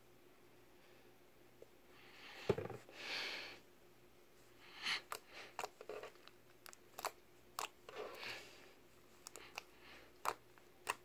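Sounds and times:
slime squishing: 0:05.0 - 0:11.0.

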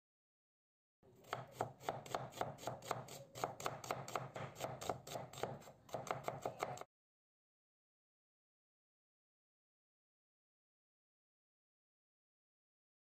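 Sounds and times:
knife chopping on wooden board: 0:01.2 - 0:06.9.

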